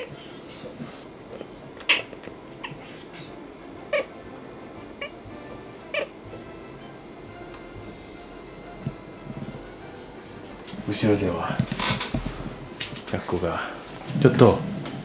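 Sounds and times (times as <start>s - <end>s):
cat chirping: 0.0s - 0.7s, 1.3s - 4.2s, 5.9s - 6.2s.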